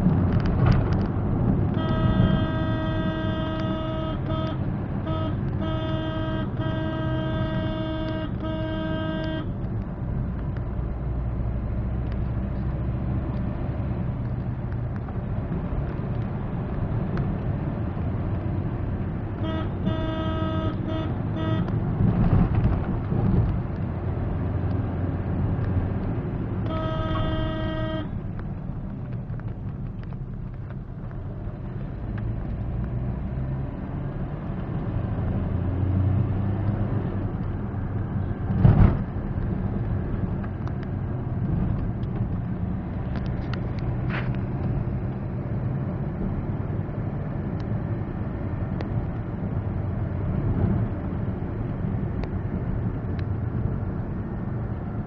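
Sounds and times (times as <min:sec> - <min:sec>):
car engine and road noise: 0:00.0 - 0:55.0
car horn tooting: 0:01.7 - 0:09.6, 0:19.4 - 0:21.8, 0:26.6 - 0:28.2.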